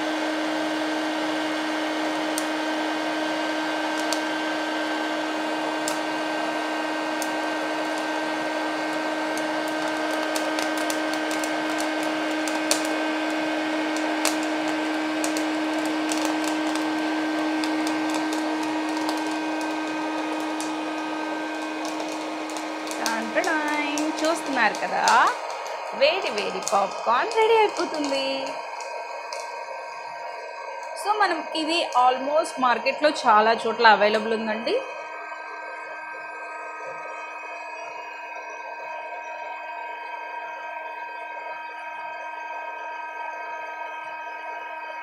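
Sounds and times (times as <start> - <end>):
corn kernels popping: 0.0 - 34.6
popcorn maker blower hum: 0.0 - 45.0.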